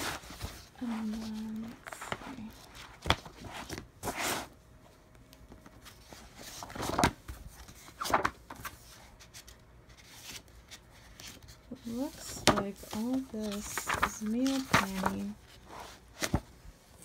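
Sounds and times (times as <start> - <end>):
paper pages turning: 5.5 - 17.0.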